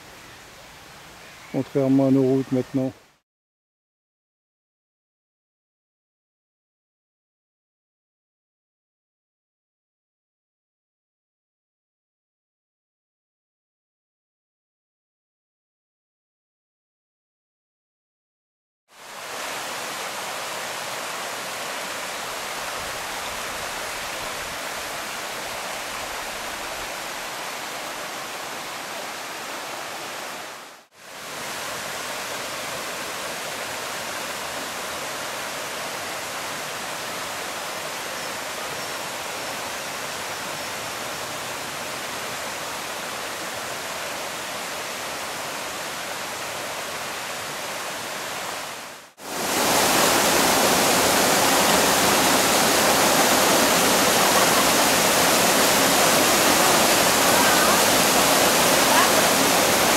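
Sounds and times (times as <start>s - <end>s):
stream rushing over stones: 18.9s - 59.9s.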